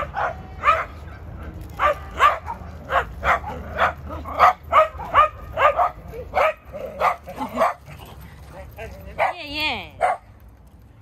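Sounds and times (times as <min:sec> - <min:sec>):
dog barking in high yaps: 0:01.8 - 0:07.8.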